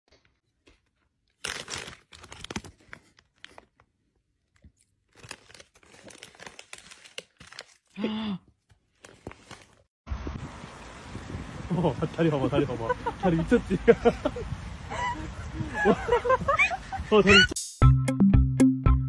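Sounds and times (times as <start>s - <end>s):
foil chip bag crinkling: 0.6s - 8.0s.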